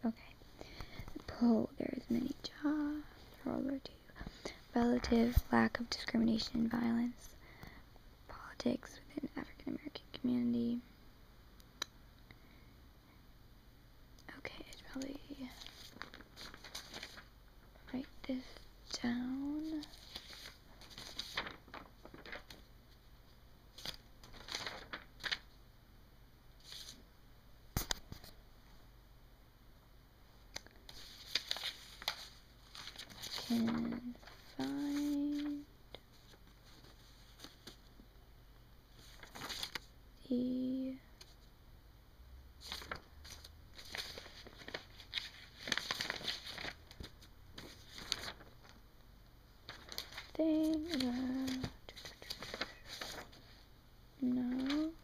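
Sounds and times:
paper rustling and crinkling: 14.6s - 23.0s, 23.7s - 25.6s, 26.6s - 27.0s, 30.6s - 38.0s, 38.9s - 40.0s, 42.6s - 48.8s, 49.6s - 53.6s, 54.2s - 55.0s.

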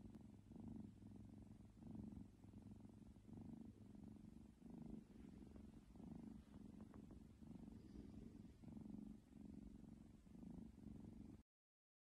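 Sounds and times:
kitten purring: 0.0s - 11.4s.

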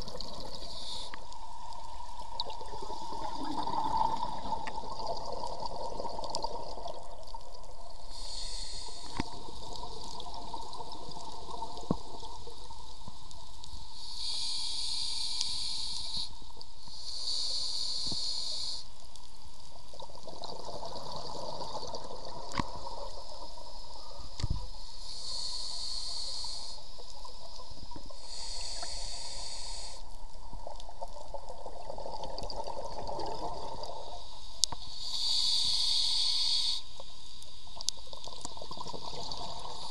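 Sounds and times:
hissing regulator inhalations: 0.1s - 1.4s, 8.0s - 9.4s, 13.8s - 19.0s, 23.7s - 27.2s, 28.0s - 30.1s, 34.2s - 37.4s.

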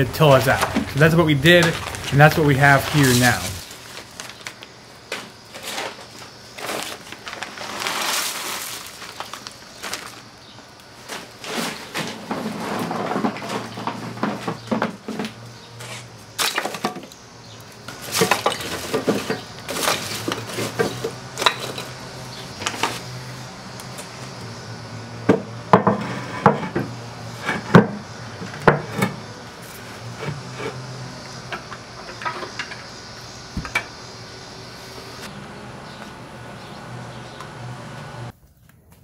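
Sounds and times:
wood chunks and metal clinking: 0.5s - 10.2s, 16.4s - 17.2s, 17.9s - 22.0s.

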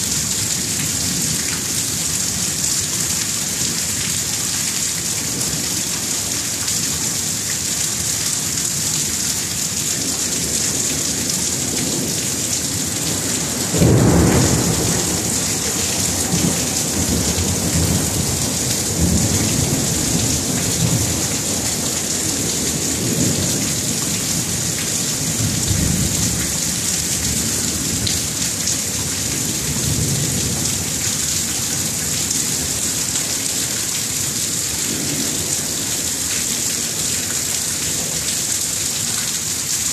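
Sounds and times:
heavy rain: 0.0s - 39.9s
rolling thunder rumbles: 11.6s - 28.2s.

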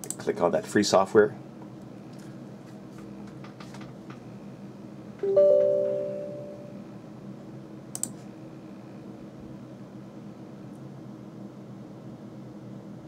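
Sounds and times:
sharp click: 0.0s - 0.2s, 7.9s - 8.2s
two-note electronic chime: 5.2s - 6.8s
light clicks: 7.9s - 8.2s.

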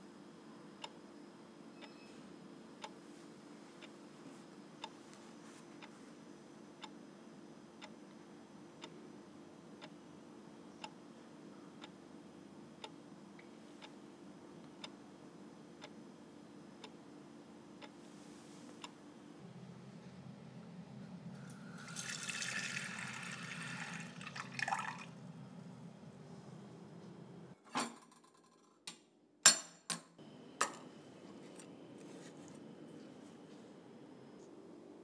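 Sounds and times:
low hum: 19.4s - 27.6s
water running from a tap: 21.5s - 25.4s.

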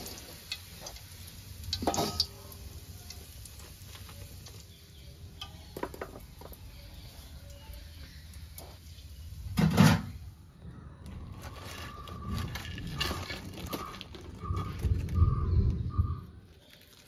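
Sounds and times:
hot oil sizzling: 0.0s - 10.5s.

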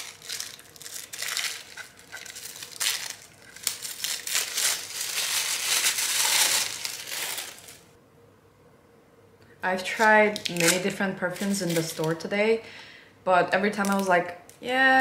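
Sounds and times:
plastic wrapping crinkling: 0.0s - 7.9s, 9.8s - 12.3s, 13.7s - 14.2s.

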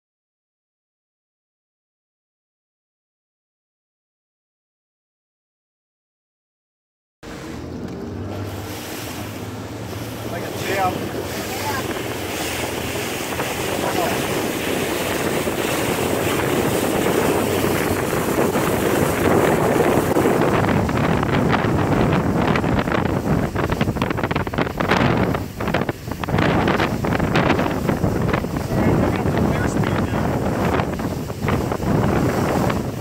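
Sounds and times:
motorboat rush of wind and water: 7.2s - 33.0s
wind buffeting microphone: 7.3s - 33.0s.

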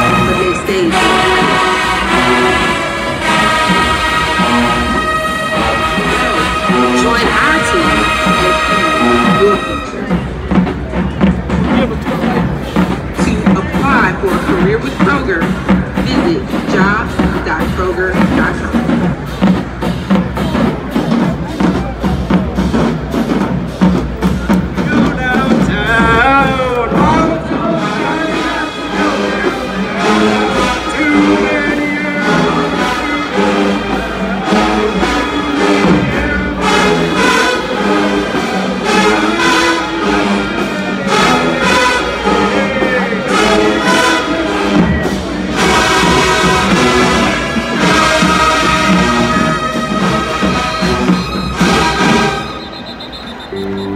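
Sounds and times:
brass wavering phrase: 0.0s - 10.3s, 27.2s - 53.9s
marching drumline beat: 0.0s - 53.9s.

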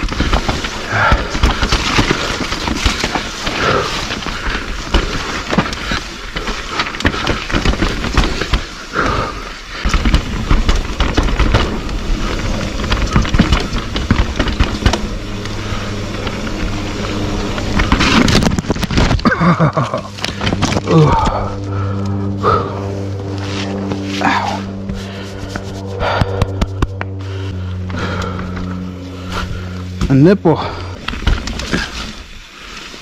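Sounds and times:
bike chain and frame clattering: 0.0s - 22.6s
bike tyres rumbling over dirt: 0.0s - 33.0s
steady low buzz: 0.0s - 33.0s.

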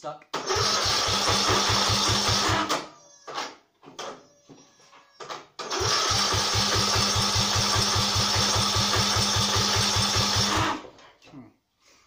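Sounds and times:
engine cranking without firing: 0.4s - 2.8s, 5.6s - 11.0s.

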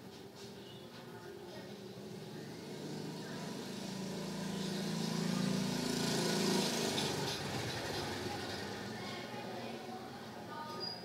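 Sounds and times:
vehicle engine passing by: 1.9s - 10.4s.

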